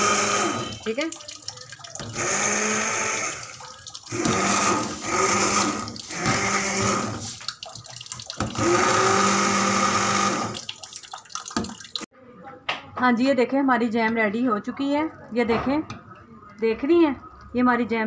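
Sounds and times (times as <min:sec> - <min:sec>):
stick blender motor whining: 0:00.0 - 0:00.6, 0:02.1 - 0:03.5, 0:04.1 - 0:07.2, 0:08.6 - 0:10.6
blender churning soft fruit: 0:00.0 - 0:01.0, 0:02.1 - 0:03.5, 0:04.1 - 0:07.4, 0:08.4 - 0:10.6.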